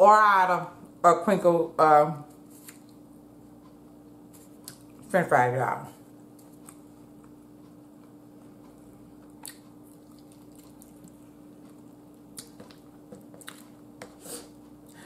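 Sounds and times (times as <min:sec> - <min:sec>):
steady low hum: 0:00.0 - 0:15.0
person chewing: 0:06.2 - 0:15.0.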